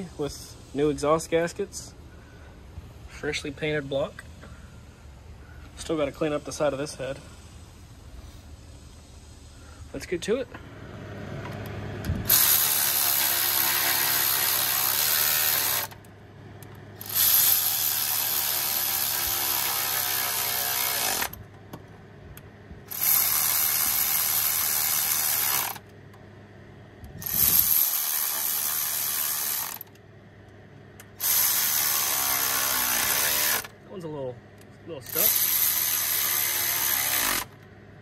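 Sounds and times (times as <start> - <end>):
power tool whirring: 11.4 - 16.1, 17.0 - 21.4, 22.9 - 25.9, 27.2 - 30.0, 31.1 - 33.7, 35.0 - 37.6.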